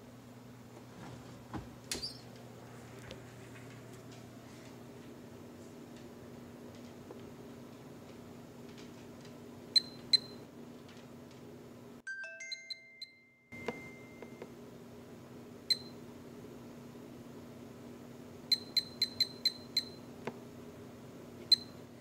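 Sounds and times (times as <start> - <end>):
low background hum: 0.0 - 22.0
kitchen timer beeping: 9.7 - 10.4, 12.1 - 14.5, 15.7 - 16.0, 18.5 - 20.1, 21.4 - 21.8.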